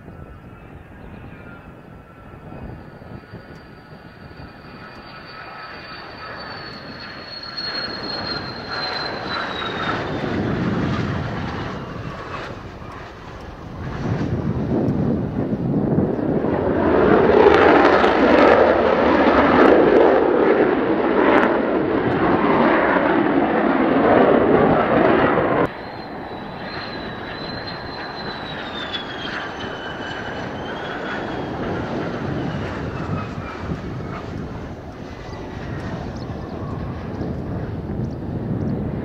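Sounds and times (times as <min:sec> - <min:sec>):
high falling whistle: 0:00.0 - 0:13.1, 0:25.1 - 0:37.0
jet engine roar: 0:00.0 - 0:39.0.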